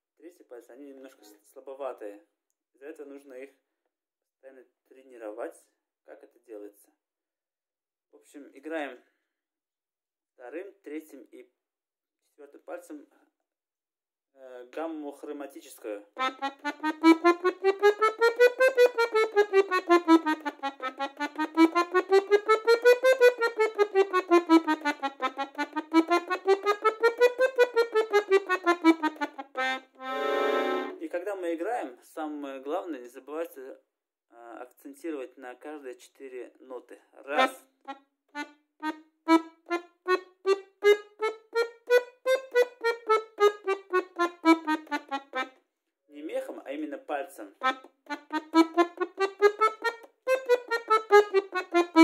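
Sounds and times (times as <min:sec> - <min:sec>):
button accordion playing scale: 0:16.2 - 0:31.0, 0:37.4 - 0:37.6, 0:38.3 - 0:45.6, 0:47.6 - 0:52.0.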